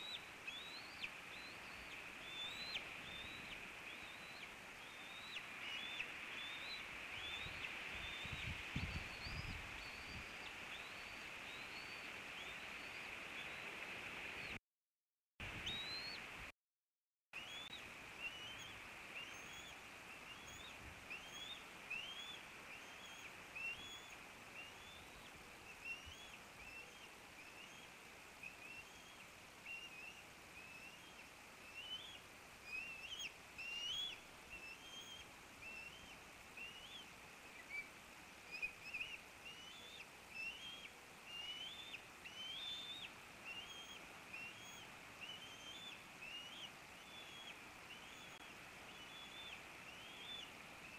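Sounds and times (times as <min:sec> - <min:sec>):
eaglet cheeping: 0:00.0 - 0:08.5, 0:38.5 - 0:50.9
microphone hiss: 0:00.0 - 0:14.6, 0:15.4 - 0:16.5, 0:17.4 - 0:50.9.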